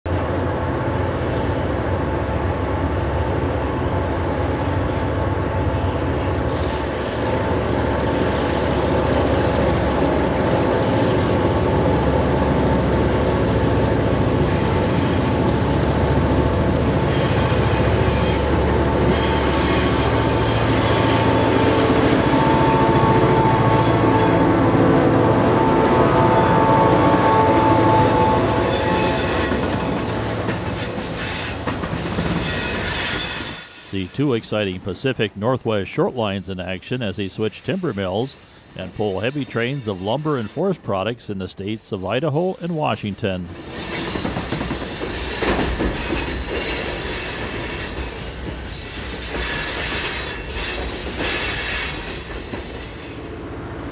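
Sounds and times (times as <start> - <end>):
diesel locomotive engines rumbling: 0.1 - 53.9
train wheel squeal: 14.4 - 15.5, 16.7 - 25.0, 25.7 - 34.1, 37.4 - 40.7, 43.5 - 53.4.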